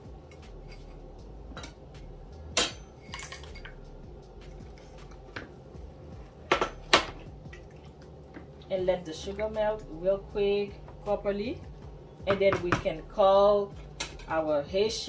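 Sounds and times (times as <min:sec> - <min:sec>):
utensils knocking against saucepan: 0:02.6 - 0:03.8, 0:06.5 - 0:07.2.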